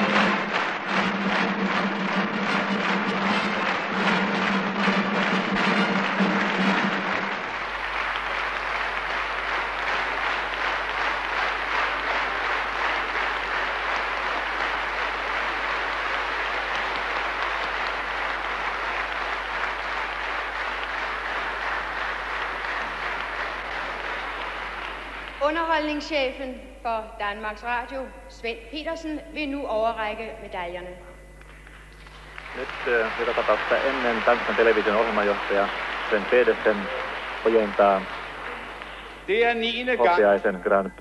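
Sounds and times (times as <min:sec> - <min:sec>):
music: 0:00.0 - 0:25.3
audience applauding: 0:00.0 - 0:26.1, 0:31.4 - 0:41.0.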